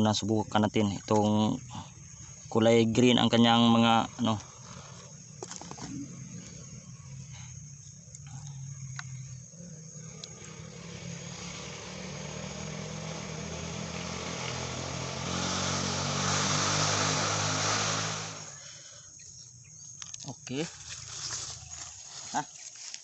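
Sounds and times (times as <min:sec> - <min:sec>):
passing vehicle engine: 0:08.6 - 0:18.8.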